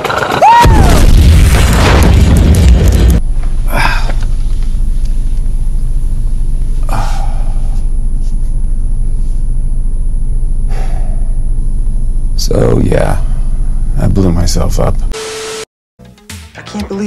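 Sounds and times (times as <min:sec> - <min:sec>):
loud low rumble: 0:00.7 - 0:15.1
man exhaling: 0:03.6 - 0:04.2, 0:06.8 - 0:07.8, 0:10.7 - 0:11.3
high ringing tone: 0:05.2 - 0:14.1.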